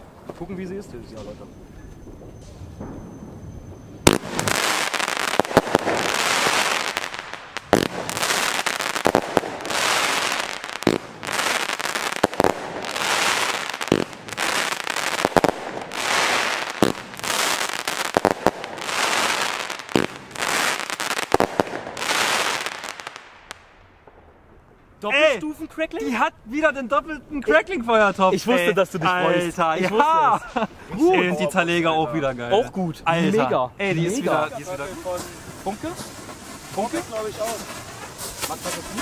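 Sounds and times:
firework bangs: 2.0 - 24.7, 34.3 - 39.0
firework crackling: 4.0 - 24.6, 34.1 - 39.0.

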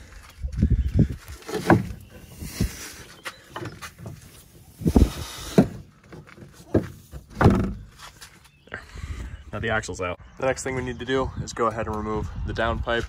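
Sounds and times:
metal clunks and knocks: 5.6 - 7.9.

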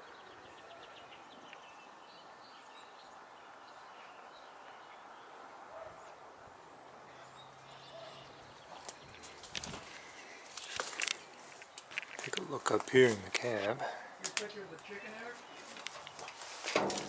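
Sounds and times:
faint bird chirps: 7.1 - 10.2.

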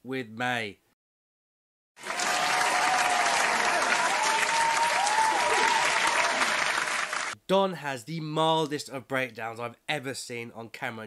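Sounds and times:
studio audience applause: 2.0 - 7.4
wavering cheers: 2.0 - 7.4.

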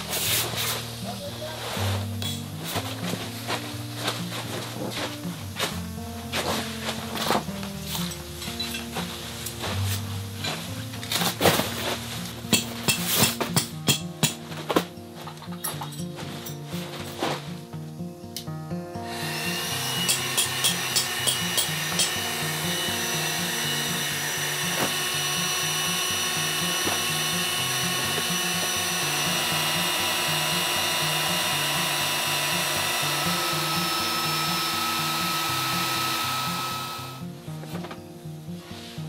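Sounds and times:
electric air pump running: 0.0 - 0.8, 19.0 - 37.4
background music: 0.0 - 39.0.

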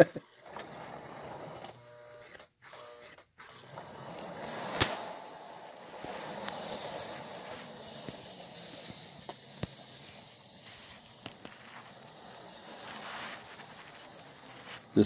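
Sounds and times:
toy train whirring: 0.0 - 15.0
track clicks: 2.4 - 13.0.

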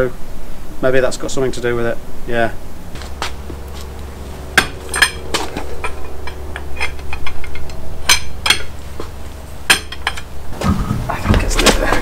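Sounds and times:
wrench clanking on wheel nuts: 4.5 - 10.4.

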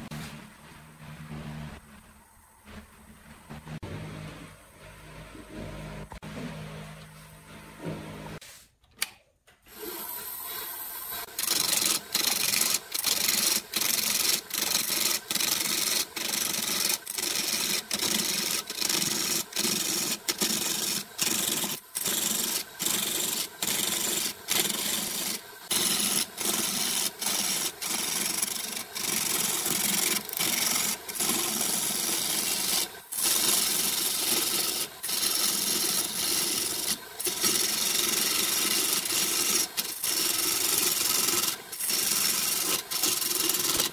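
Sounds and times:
lathe tool scraping wood: 9.7 - 43.9
wood lathe running: 9.7 - 43.9.

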